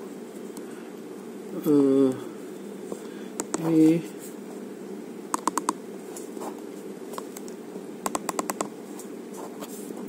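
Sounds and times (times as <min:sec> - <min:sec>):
phone keypad clicks: 0:05.4 - 0:05.8, 0:08.1 - 0:08.7.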